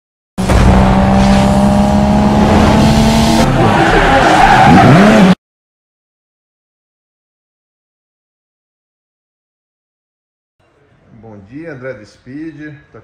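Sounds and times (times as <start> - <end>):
car engine at high revs: 0.4 - 5.4
tyres squealing: 3.5 - 5.3.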